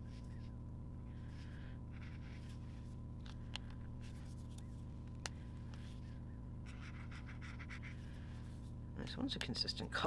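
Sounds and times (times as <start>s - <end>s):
marker scratching on paper: 1.9s - 2.7s, 6.6s - 8.1s.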